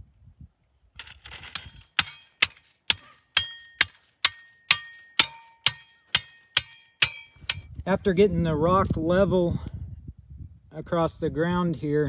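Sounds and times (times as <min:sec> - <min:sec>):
steel tamper striking gravel: 0:01.0 - 0:07.9.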